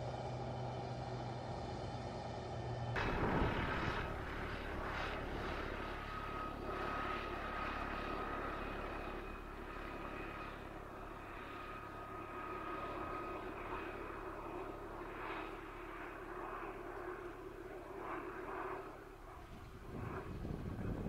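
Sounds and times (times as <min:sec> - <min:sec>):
engine-like hum: 0:00.0 - 0:21.0
thin high whine: 0:03.0 - 0:07.8.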